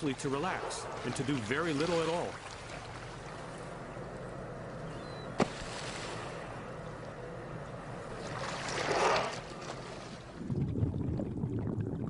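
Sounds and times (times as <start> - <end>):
water lapping: 0.0 - 10.5.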